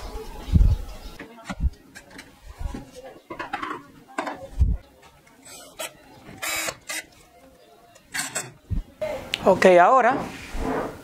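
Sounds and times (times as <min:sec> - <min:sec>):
clicks and scraping: 0:08.0 - 0:08.6.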